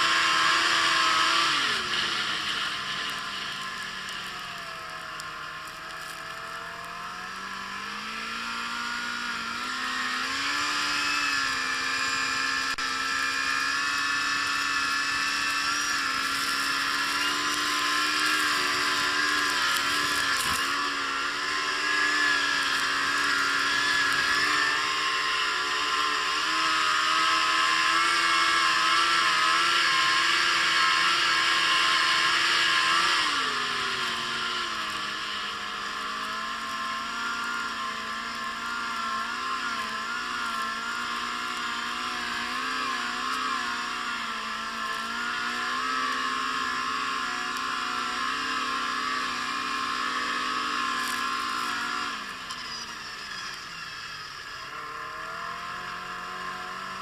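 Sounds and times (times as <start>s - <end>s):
snowmobile engine accelerating: 0.0s - 57.0s.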